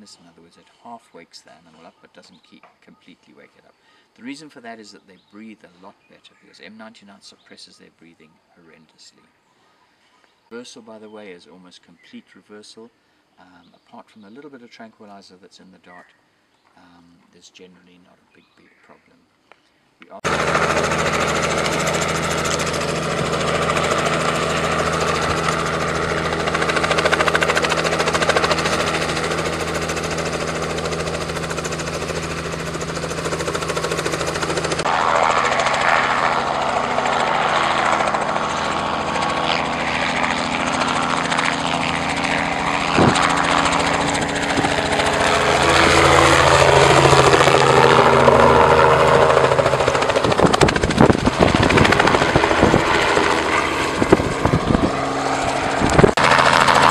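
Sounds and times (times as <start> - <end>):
helicopter rotor and engine droning: 20.2 - 56.9.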